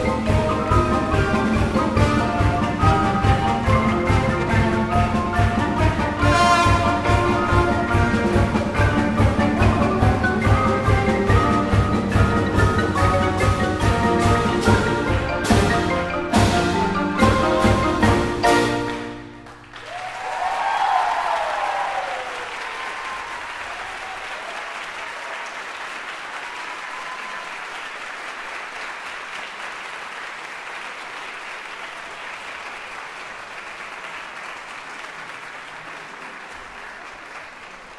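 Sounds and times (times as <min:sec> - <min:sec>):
audience applause: 0:18.8 - 0:37.9
audience shouts and whoops: 0:19.8 - 0:25.6, 0:26.6 - 0:27.8.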